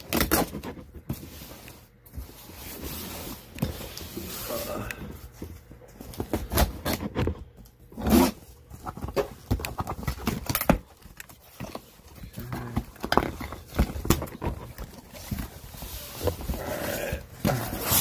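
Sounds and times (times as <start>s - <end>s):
cardboard rustling and scraping: 0.0s - 18.0s.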